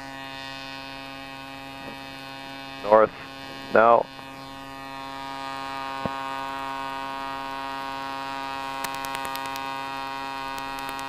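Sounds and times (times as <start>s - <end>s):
drone propeller droning hum: 0.0s - 11.0s
sharp click: 8.8s - 9.7s, 10.5s - 11.0s
ticks: 8.8s - 9.7s, 10.5s - 11.0s.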